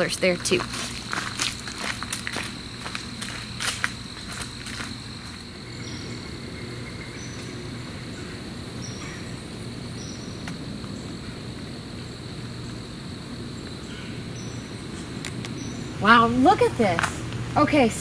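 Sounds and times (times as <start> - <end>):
insects trilling: 0.0 - 18.0
footsteps crunching on dry leaves: 0.2 - 5.7.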